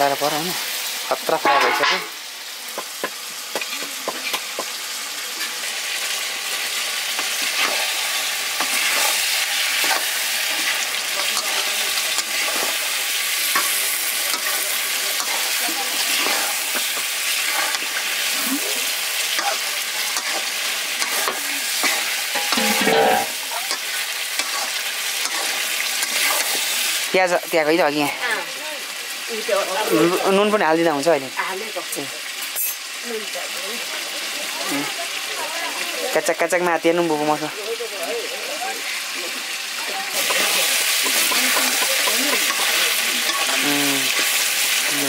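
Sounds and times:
chicken sizzling in hot oil: 0.0s - 45.0s
wooden spatula scraping wok: 13.5s - 18.0s, 19.4s - 26.7s.

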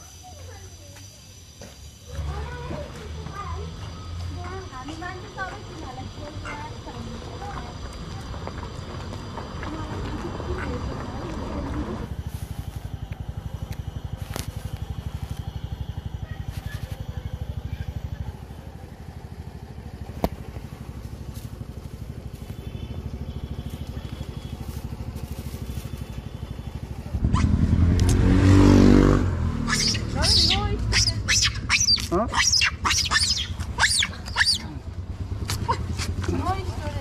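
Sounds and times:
small engine idling: 0.0s - 37.0s.

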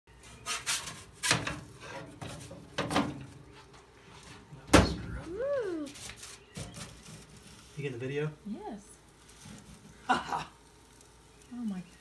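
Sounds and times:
metal hood knocks and clanks: 1.2s - 3.4s, 4.7s - 5.2s.

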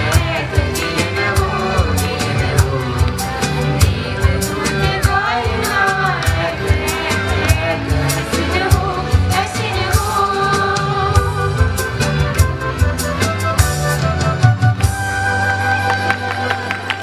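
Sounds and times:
group of voices singing carol: 0.0s - 11.6s
amplified backing music: 0.0s - 17.0s.

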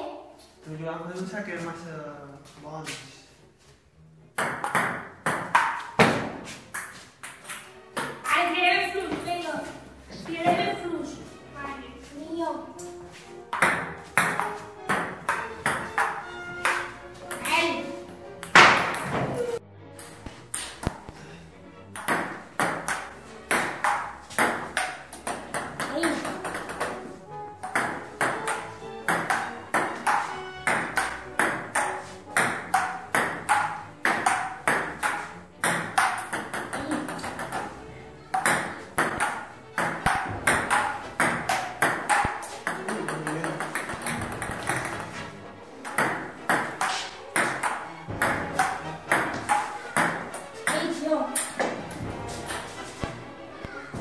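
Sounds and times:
ping pong ball hits: 4.3s - 8.4s, 13.5s - 17.8s, 18.4s - 21.2s, 21.9s - 45.2s, 45.8s - 53.1s.

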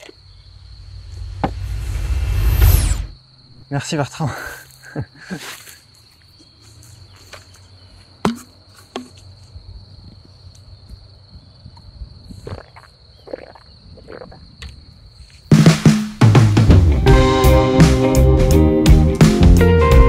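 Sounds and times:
cricket chirring: 0.0s - 15.6s
handling clicks and knocks in grass: 5.4s - 9.6s
music with drum beat: 15.5s - 20.0s.

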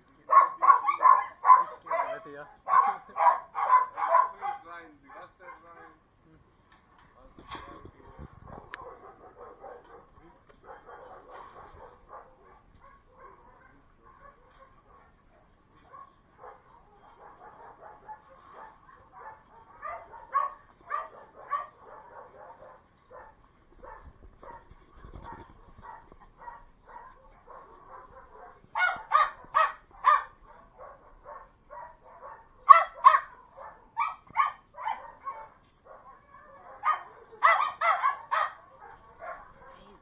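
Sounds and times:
dogs barking: 0.2s - 4.8s, 5.4s - 6.1s, 8.5s - 40.0s
loud rapid dog barks: 0.3s - 4.7s, 8.7s - 10.1s, 15.9s - 22.8s, 25.9s - 39.5s.

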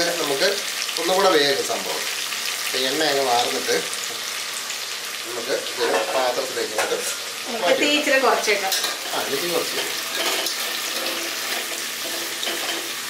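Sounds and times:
hot oil sizzling: 0.0s - 13.0s
metal ladle: 9.7s - 13.0s.

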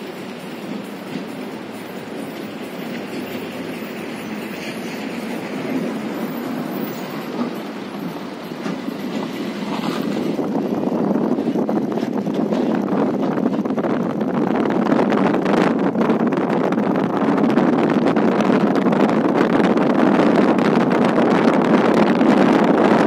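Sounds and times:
river rushing: 0.0s - 10.9s.

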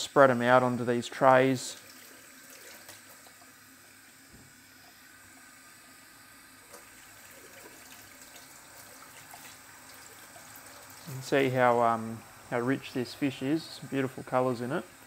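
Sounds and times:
tap water running into sink: 1.6s - 11.4s.

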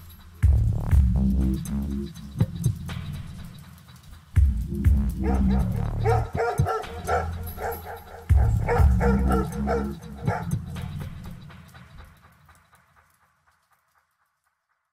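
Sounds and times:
music with heavy deep bass: 0.0s - 12.6s
dogs barking: 5.0s - 11.4s.

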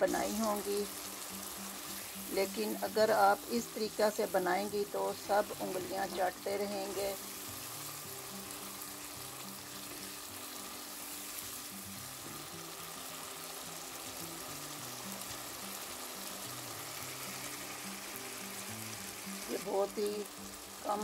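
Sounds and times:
food sizzling in hot oil: 0.0s - 21.0s
soft background music: 0.0s - 21.0s.

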